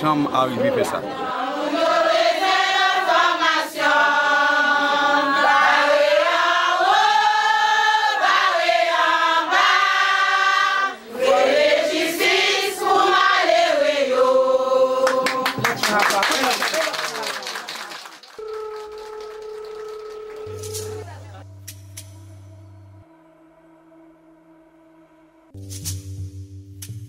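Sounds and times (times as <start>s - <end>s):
group of adults singing: 0.1s - 16.0s.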